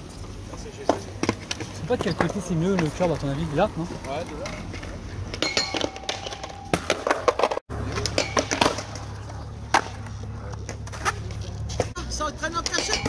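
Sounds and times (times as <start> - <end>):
skateboard wheels rolling on concrete: 0.0 - 13.0
skateboard clacks: 4.0 - 12.0.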